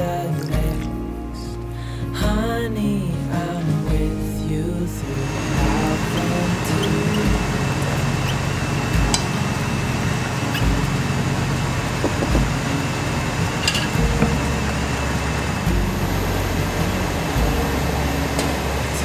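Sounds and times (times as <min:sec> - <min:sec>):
soft background music: 0:00.0 - 0:19.0
saucepan bubbling and sizzling: 0:07.4 - 0:19.0.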